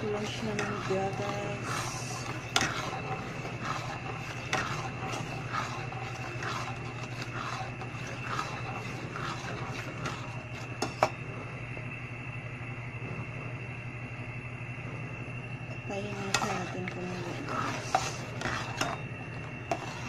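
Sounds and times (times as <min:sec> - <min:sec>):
spoon scraping metal pot: 0:00.0 - 0:11.2, 0:15.8 - 0:20.0
low hum: 0:00.0 - 0:20.0.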